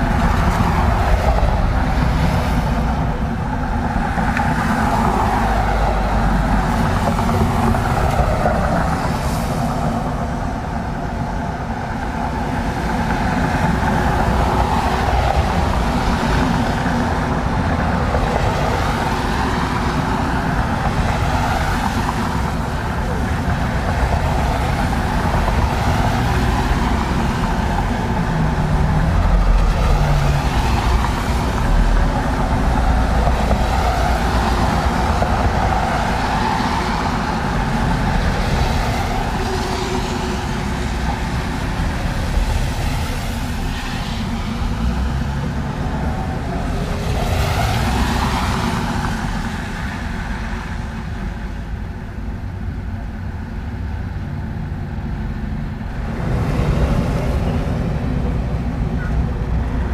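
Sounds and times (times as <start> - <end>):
cars passing on wet road: 0.0 - 59.9.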